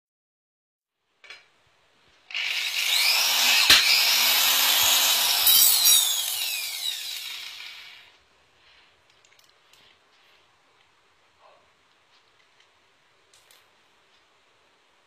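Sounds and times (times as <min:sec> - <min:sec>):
rod shearing with sharp crack: 0:02.3 - 0:07.9
electric cutter motor running: 0:02.3 - 0:08.1.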